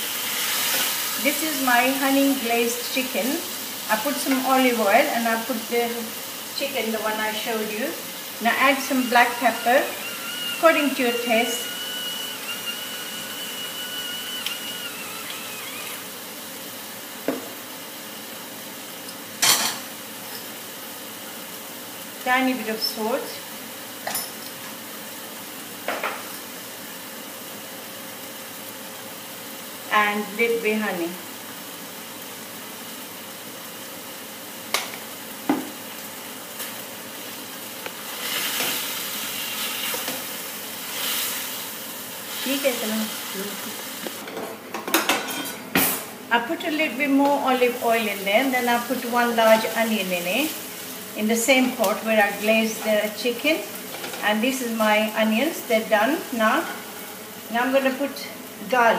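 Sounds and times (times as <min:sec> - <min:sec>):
chicken frying in oil: 0:00.0 - 0:44.2.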